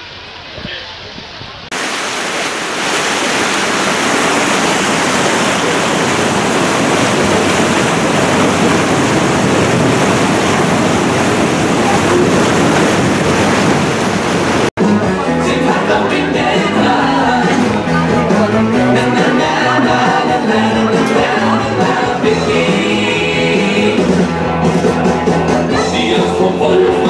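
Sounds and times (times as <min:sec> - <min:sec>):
churning water rushing: 0:00.0 - 0:27.0
music: 0:14.8 - 0:27.0.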